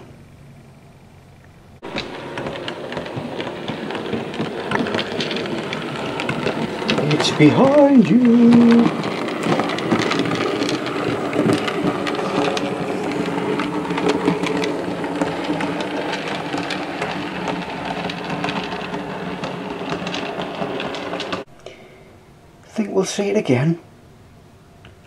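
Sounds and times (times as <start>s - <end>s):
model train rattling hum: 0.0s - 21.5s.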